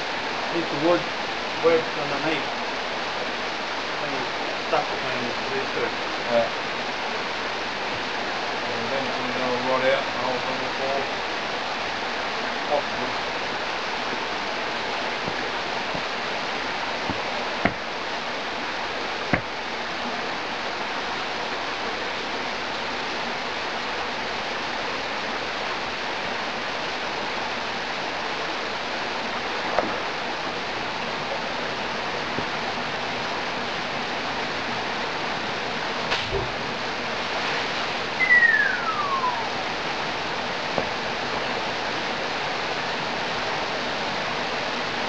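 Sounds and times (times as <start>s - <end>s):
water flowing over rocks: 0.0s - 45.0s
sharp knocks: 17.1s - 17.9s, 19.3s - 19.5s.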